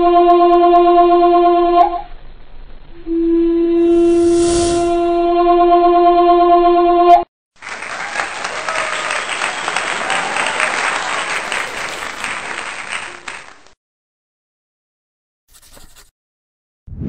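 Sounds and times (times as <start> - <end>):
crowd applause: 7.6 - 13.8
voices in crowd: 7.8 - 13.4.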